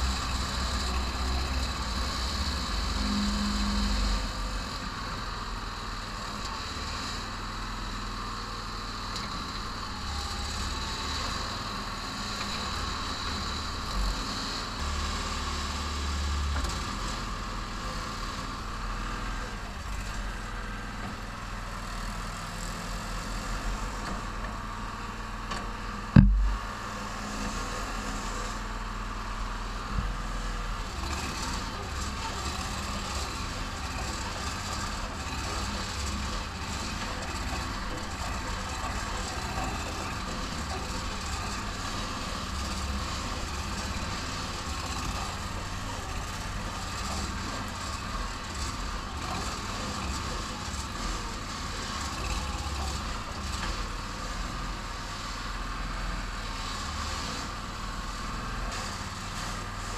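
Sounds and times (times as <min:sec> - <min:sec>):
excavator engine running: 0:00.0 - 0:59.9
sharp loud knock: 0:26.2 - 0:26.6.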